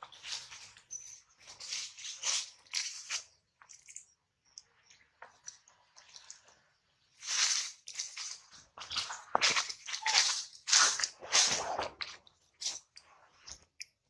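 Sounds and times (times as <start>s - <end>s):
footsteps crunching dry leaves: 0.1s - 0.7s, 1.4s - 3.3s, 7.2s - 11.6s.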